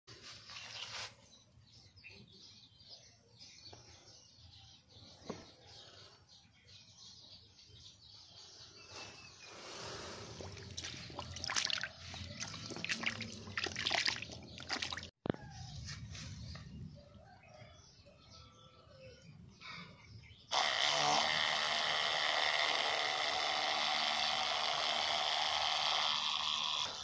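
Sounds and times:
faint water trickling: 10.2s - 15.1s
splashing in muddy puddle: 10.3s - 15.1s.

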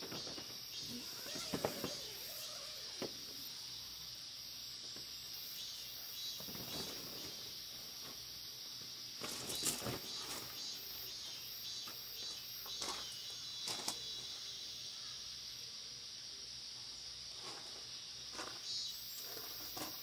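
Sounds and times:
insects chirring: 0.0s - 20.0s
footsteps on wood chips: 17.4s - 20.0s.

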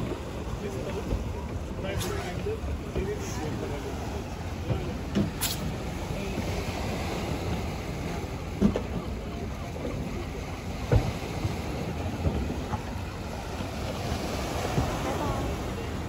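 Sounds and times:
sea waves washing on boulders: 0.0s - 16.0s.

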